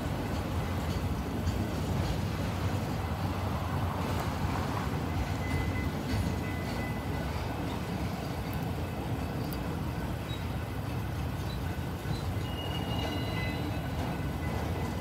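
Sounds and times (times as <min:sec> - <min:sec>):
train wheels rumbling on rail: 0:00.0 - 0:15.0
high wheel squeals: 0:11.4 - 0:15.0.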